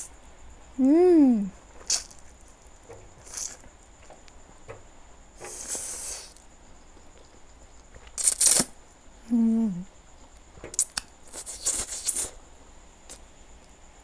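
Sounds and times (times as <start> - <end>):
wet mouth clicks: 1.9 - 2.2, 10.8 - 12.4.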